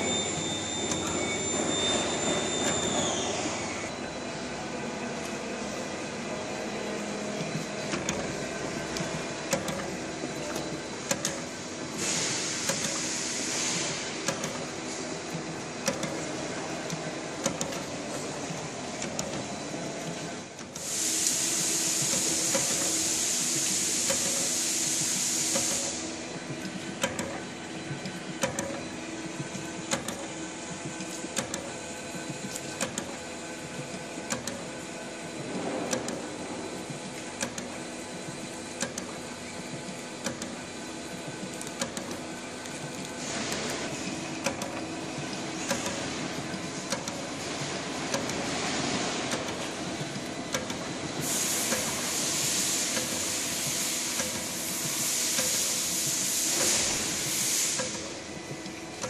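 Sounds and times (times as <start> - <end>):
conveyor machine hum: 0.0 - 59.0
printer clicks: 7.4 - 24.6, 25.4 - 34.7, 35.4 - 48.5, 49.2 - 59.0
hiss: 12.0 - 14.2, 20.8 - 26.1, 51.2 - 58.2.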